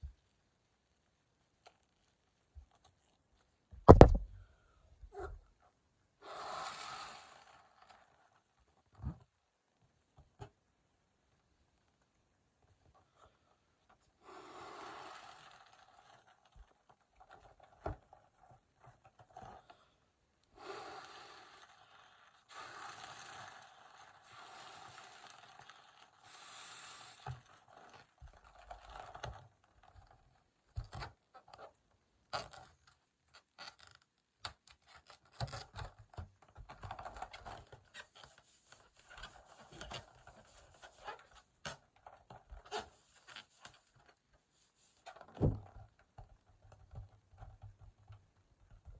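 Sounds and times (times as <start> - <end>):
breath blown into balloon: 6.2 - 7.5, 14.2 - 15.6, 20.6 - 25.2, 26.2 - 27.2
rubber balloon rubbed and squeaking: 6.2 - 8.5, 14.2 - 18.4, 20.6 - 31.7, 34.9 - 47.7.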